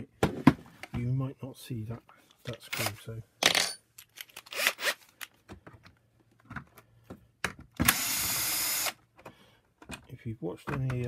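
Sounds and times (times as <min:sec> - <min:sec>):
cordless drill running: 0:07.8 - 0:09.0.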